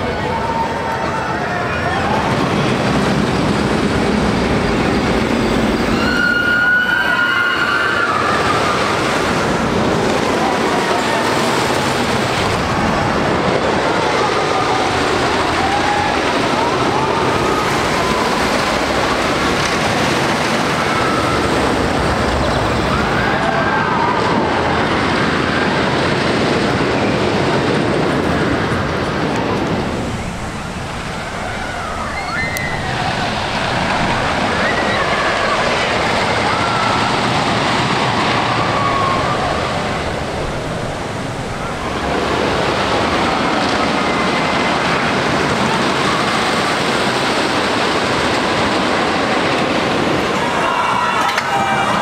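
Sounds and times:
roller coaster rumbling on track: 0.0s - 52.0s
high sustained squeal: 5.3s - 9.0s.

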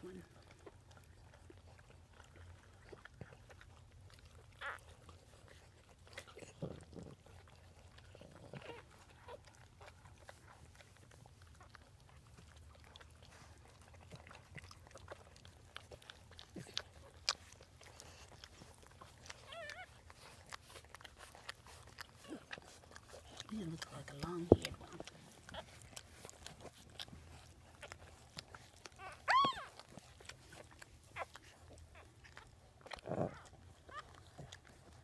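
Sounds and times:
dogs licking puppy: 0.0s - 35.0s
puppy squeak: 19.4s - 19.9s, 29.0s - 29.8s.

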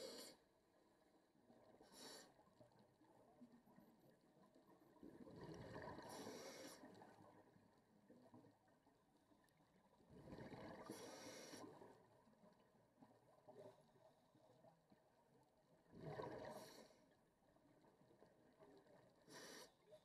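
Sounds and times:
underwater breath bubbles: 5.0s - 7.3s, 10.1s - 12.0s, 15.9s - 17.1s.

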